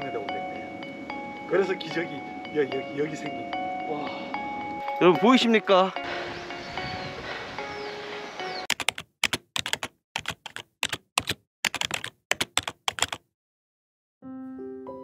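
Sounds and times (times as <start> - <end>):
soft music: 0.0 - 8.7, 14.2 - 15.0
piano music: 0.0 - 8.9, 14.2 - 15.0
outdoor ambience: 6.0 - 8.7
keyboard typing clicks: 8.7 - 13.2.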